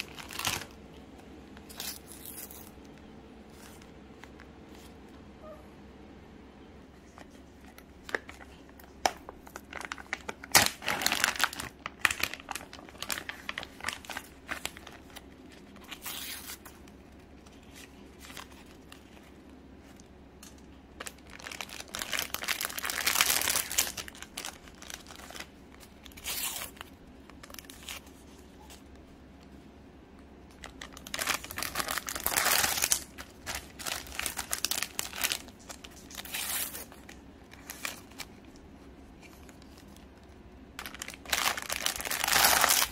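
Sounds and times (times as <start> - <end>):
plastic pouch tearing open: 0.0 - 0.8, 8.1 - 16.8, 21.0 - 28.2, 30.6 - 38.3, 40.8 - 42.9
plastic wrappers crinkling and tearing: 0.0 - 4.5, 7.0 - 28.9, 30.5 - 42.9.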